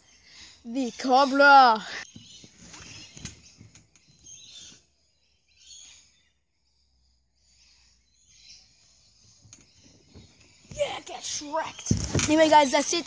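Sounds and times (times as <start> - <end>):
faint outdoor background noise: 0.0 - 13.0.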